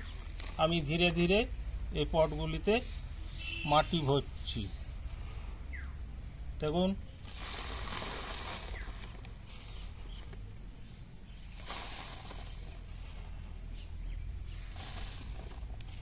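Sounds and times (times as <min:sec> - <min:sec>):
soil poured into plastic packet: 0:07.2 - 0:09.3, 0:11.5 - 0:13.3, 0:14.6 - 0:16.0.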